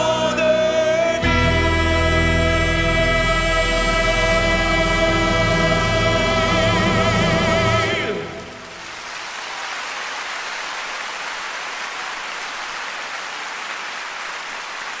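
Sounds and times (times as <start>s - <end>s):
audience applauding: 5.1s - 15.0s.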